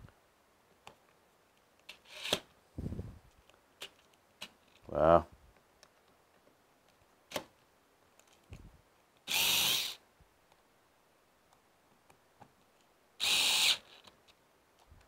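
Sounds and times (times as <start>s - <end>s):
cordless screwdriver motor whirring: 9.3s - 10.0s, 13.2s - 14.1s.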